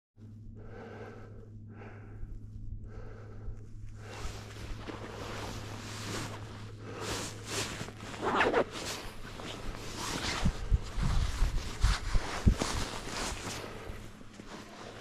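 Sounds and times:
footsteps crunching in snow: 0:04.0 - 0:15.0.

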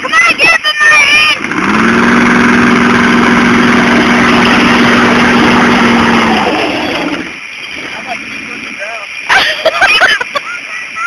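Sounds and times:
truck engine at high revs: 0:00.3 - 0:08.8.

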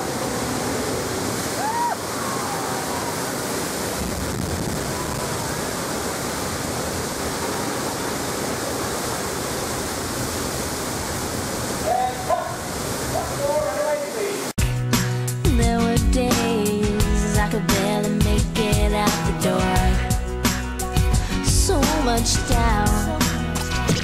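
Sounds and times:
water crashing over rocks: 0:00.0 - 0:14.6.

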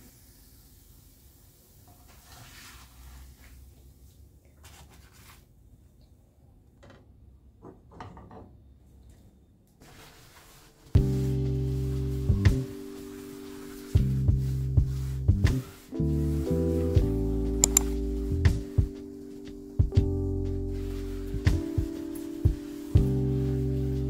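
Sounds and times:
kitchen knocks and clatters: 0:06.8 - 0:08.6.

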